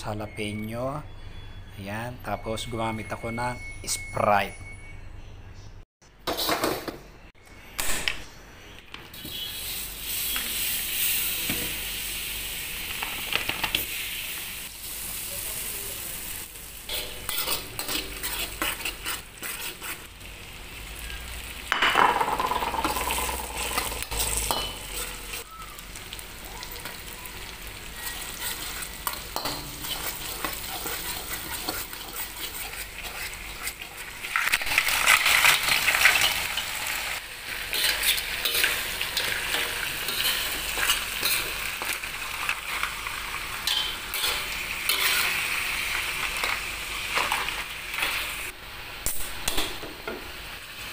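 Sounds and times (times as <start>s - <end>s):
food sizzling in a hot pan: 9.2s - 50.9s
metal spatula scraping pan: 16.9s - 20.1s, 22.5s - 25.4s, 28.0s - 34.1s, 37.5s - 41.9s, 43.6s - 45.6s.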